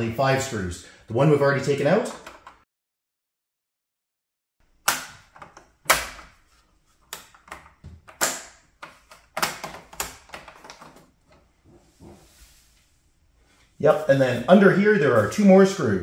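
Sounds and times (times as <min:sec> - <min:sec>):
hard plastic parts clacking: 0:07.1 - 0:11.4.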